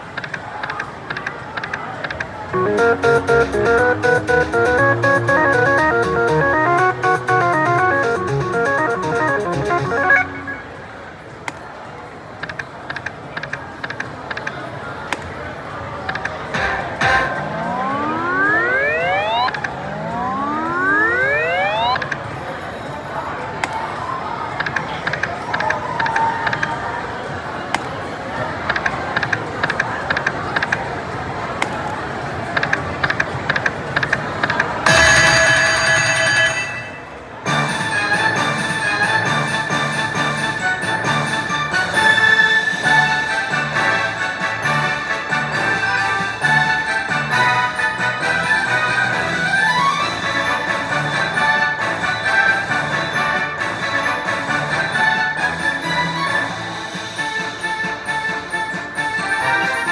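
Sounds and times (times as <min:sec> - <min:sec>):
slot machine electronic ticks: 0:00.0 - 0:11.0, 0:12.4 - 0:14.6, 0:16.0 - 0:22.3
steady background noise: 0:00.0 - 0:59.9
casino voices: 0:00.1 - 0:11.0, 0:12.4 - 0:22.2
electronic fanfare: 0:02.6 - 0:10.8, 0:16.6 - 0:22.0
slot machine win jingle: 0:02.6 - 0:11.0, 0:16.6 - 0:22.2, 0:34.9 - 0:59.9.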